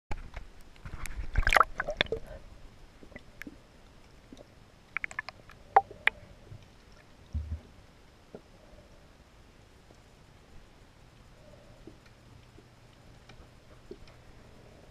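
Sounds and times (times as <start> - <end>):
water splashing and sloshing: 0.2 - 8.5
sharp underwater clicks: 4.3 - 6.2
low thump: 7.3 - 7.7.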